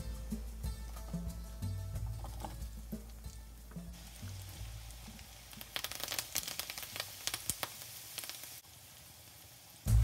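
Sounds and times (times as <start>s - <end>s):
garlic sizzling in hot oil: 2.1s - 10.0s
leaves crackling and spitting in oil: 2.1s - 10.0s.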